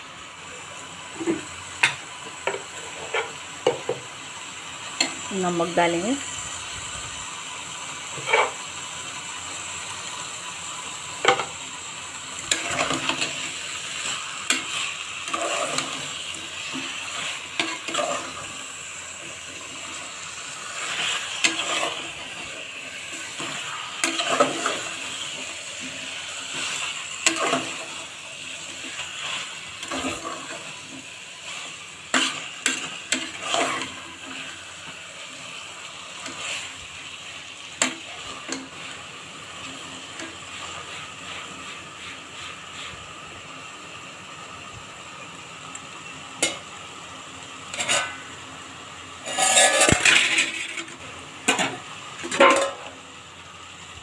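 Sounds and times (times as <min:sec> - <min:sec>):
chicken sizzling in a pot: 0:00.0 - 0:54.0
metal spatula scraping a pot: 0:08.2 - 0:08.6, 0:12.4 - 0:18.4, 0:20.8 - 0:22.4, 0:23.2 - 0:28.0, 0:31.5 - 0:34.5, 0:47.7 - 0:48.2, 0:49.2 - 0:50.9.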